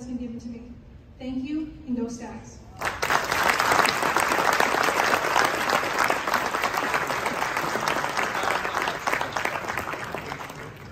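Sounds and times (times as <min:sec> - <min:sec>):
audience applauding: 0:02.8 - 0:10.9.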